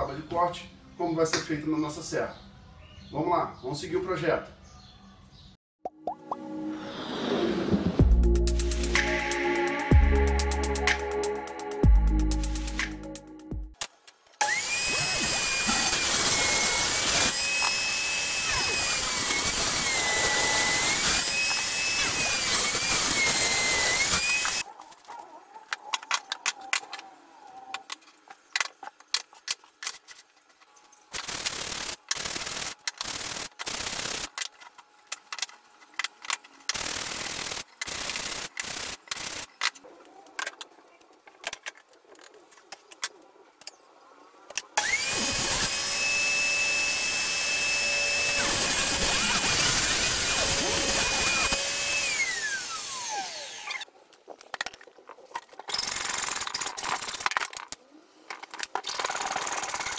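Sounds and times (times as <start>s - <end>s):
loud scrapes: 6.7s - 8.0s
table saw running with whine: 14.4s - 24.6s, 44.8s - 53.8s.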